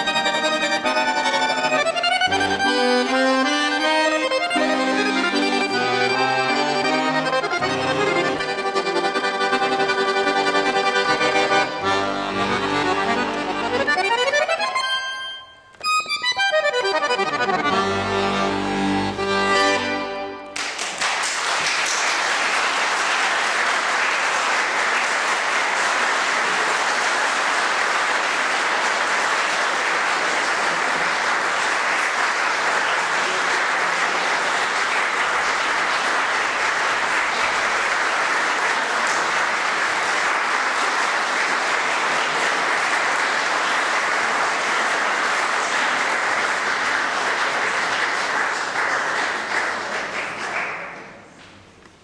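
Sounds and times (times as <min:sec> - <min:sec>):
audience applauding: 0:00.0 - 0:14.9, 0:19.8 - 0:51.8
button accordion playing: 0:00.0 - 0:20.6.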